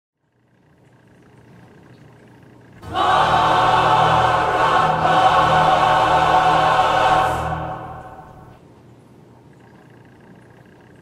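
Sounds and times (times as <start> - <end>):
choir singing sustained chords: 2.8 - 8.6.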